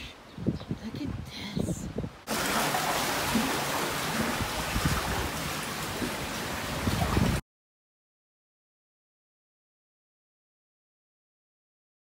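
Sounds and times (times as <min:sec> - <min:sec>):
seawater surging in cave: 0:02.3 - 0:07.4.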